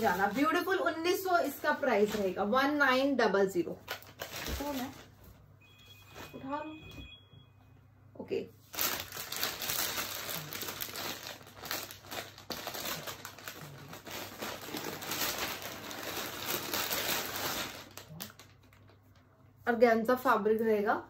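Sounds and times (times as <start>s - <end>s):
packaging crinkling and rustling: 3.8s - 5.2s, 8.7s - 19.3s.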